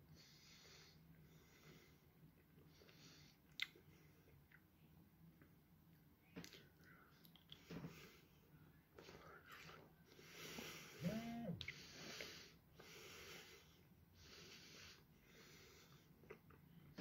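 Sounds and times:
man breathing through nose: 0:00.1 - 0:02.1, 0:10.1 - 0:16.1
man humming: 0:11.0 - 0:11.7.

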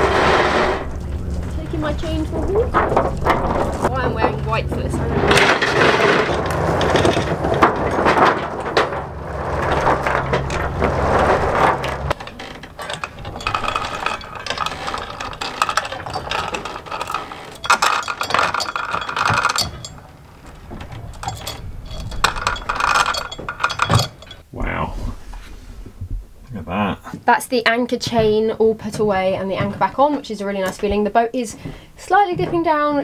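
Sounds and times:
low steady rumble: 0:00.0 - 0:27.1
anchor chain rattling and clinking: 0:00.9 - 0:24.4.

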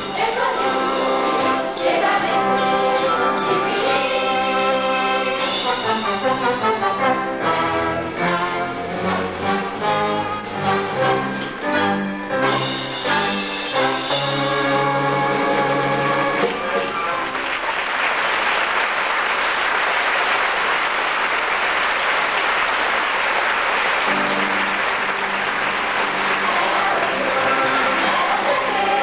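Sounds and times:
stage music: 0:00.0 - 0:29.0
audience applause: 0:16.4 - 0:29.0.

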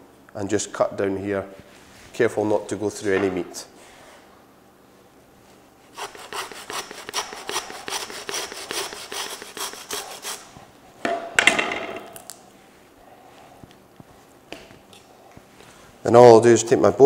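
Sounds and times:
hand saw rasping through bone: 0:05.9 - 0:10.5.

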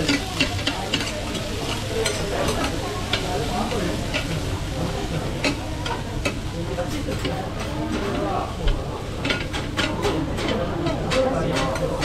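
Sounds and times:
metal spatulas scraping griddle: 0:00.0 - 0:08.2
cabbage sizzling on griddle: 0:00.0 - 0:12.0.

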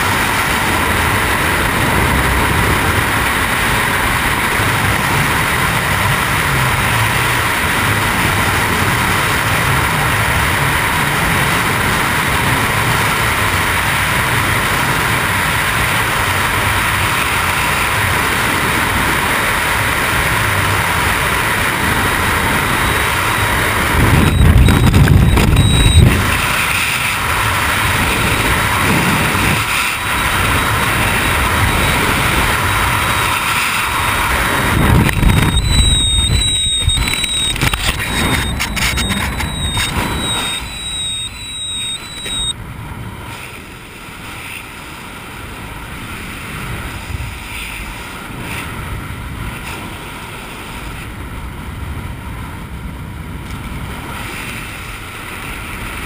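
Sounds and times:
wind rushing over microphone: 0:00.0 - 0:43.3.

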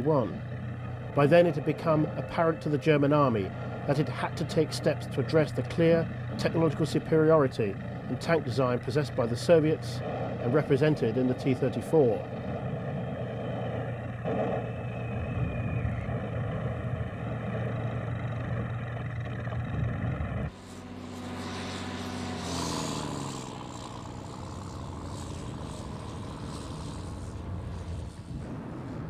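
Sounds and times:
heavy vehicle engine running: 0:00.0 - 0:29.0
quieter engine falling in pitch: 0:00.0 - 0:29.0.

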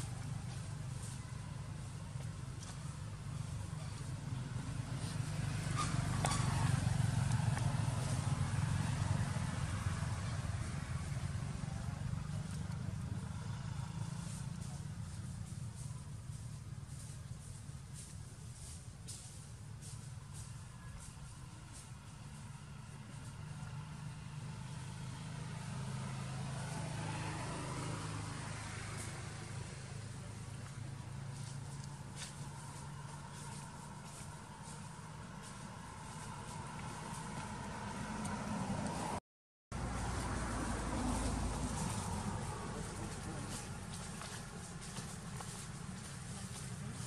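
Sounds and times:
vehicle engine rumbling: 0:00.0 - 0:47.0.

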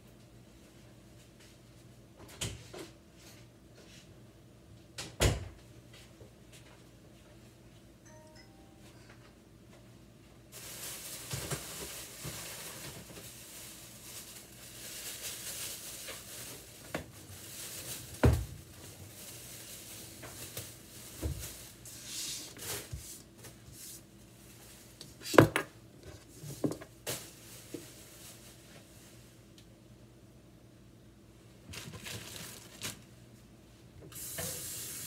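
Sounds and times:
rustling and scraping on cutting board: 0:18.8 - 0:29.1.

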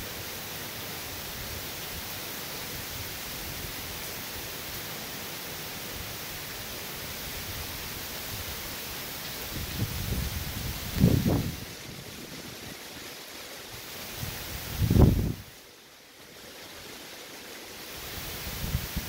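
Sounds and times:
heavy rain hissing: 0:00.0 - 0:19.0
strong wind: 0:09.4 - 0:13.0, 0:13.7 - 0:15.6, 0:18.0 - 0:19.0.

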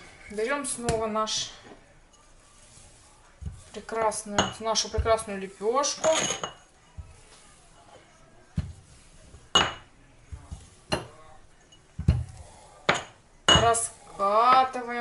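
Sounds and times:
utensils and dishes clinking: 0:03.4 - 0:08.0, 0:09.4 - 0:13.9.

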